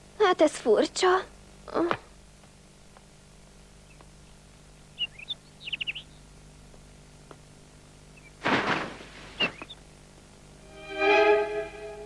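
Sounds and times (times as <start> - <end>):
small birds chirping: 3.8 - 6.6, 8.0 - 8.4, 9.2 - 9.9.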